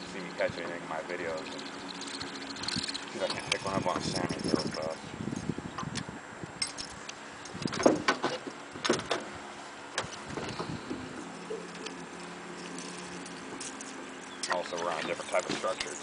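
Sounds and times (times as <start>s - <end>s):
metallic clinks of fishing tackle: 0.2s - 5.0s.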